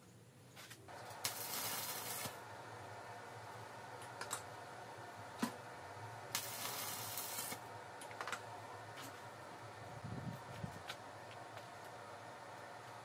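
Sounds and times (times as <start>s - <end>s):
steady low hum: 0.2s - 13.0s
welding arc hissing crackle: 0.9s - 4.6s, 6.2s - 8.4s.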